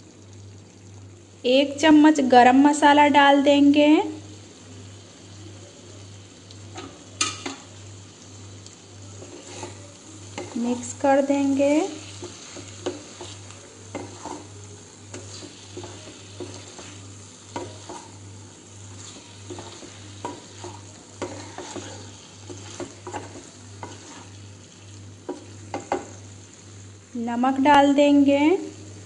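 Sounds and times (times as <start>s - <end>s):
food sizzling in a pan: 0.0s - 29.0s
spatula scraping a pan: 9.0s - 26.2s.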